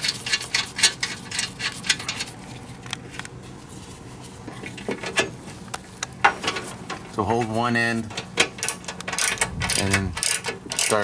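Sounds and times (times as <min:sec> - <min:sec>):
metal nut clicking on bolt threads: 0:08.1 - 0:11.0.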